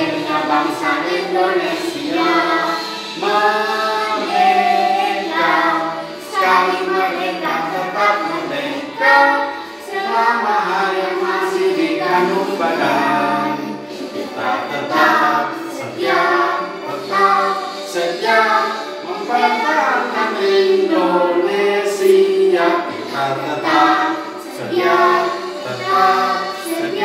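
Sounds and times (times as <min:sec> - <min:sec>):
backing music: 0:00.0 - 0:27.0
child singing along: 0:00.0 - 0:27.0
girl singing into microphone: 0:13.9 - 0:27.0.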